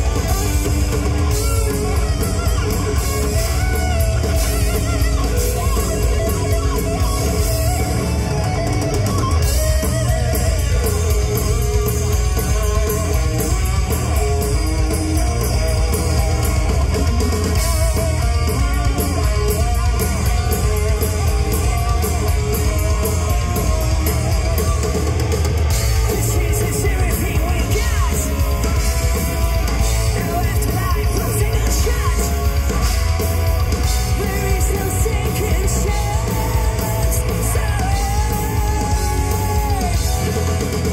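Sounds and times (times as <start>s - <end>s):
bass guitar: 0.0s - 40.9s
distorted electric guitars: 0.0s - 40.9s
drum kit: 0.0s - 40.9s
person singing: 25.8s - 28.8s, 33.8s - 40.6s.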